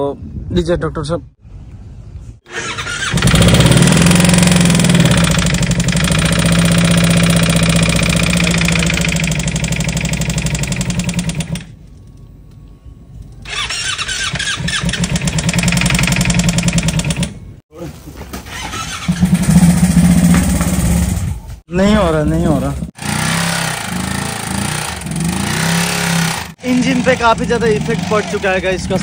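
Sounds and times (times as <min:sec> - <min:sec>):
electric starter cranking engine: 0:02.5 - 0:11.8, 0:13.4 - 0:17.4, 0:23.0 - 0:28.5.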